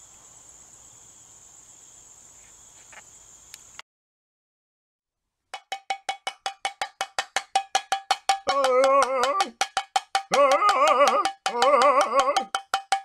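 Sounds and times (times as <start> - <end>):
rapid tapping on a ringing object: 5.6 - 13.0.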